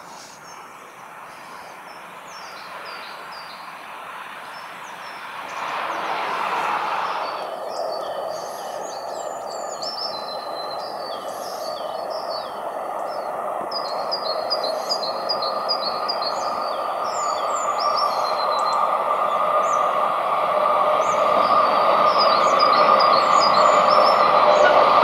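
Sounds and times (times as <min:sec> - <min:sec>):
freight train rumble: 0:00.0 - 0:25.0
locomotive engine hum: 0:00.0 - 0:25.0
small birds chirping: 0:00.1 - 0:03.8, 0:07.2 - 0:20.1, 0:20.8 - 0:24.8.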